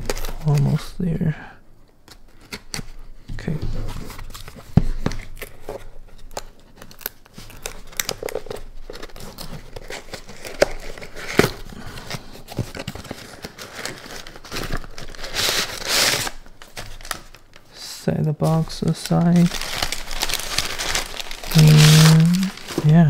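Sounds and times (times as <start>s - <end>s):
paper crinkling and rustling: 0.0s - 1.0s, 2.0s - 23.0s
cardboard tearing: 4.2s - 17.5s, 18.8s - 23.0s.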